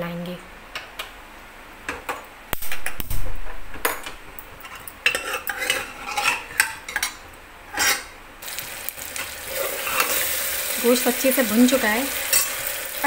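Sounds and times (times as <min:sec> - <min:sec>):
meat sizzling: 0:08.4 - 0:13.0
ladle scraping pot: 0:09.5 - 0:10.4.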